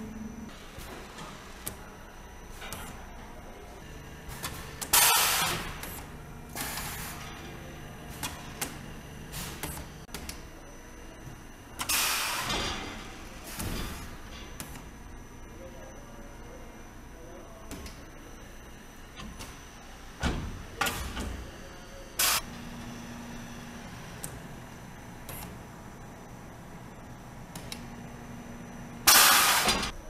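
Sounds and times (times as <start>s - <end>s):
low machine hum: 0.0s - 30.0s
clicks and knocks of machinery: 2.6s - 3.0s, 4.3s - 10.4s, 25.2s - 25.6s, 27.5s - 27.9s.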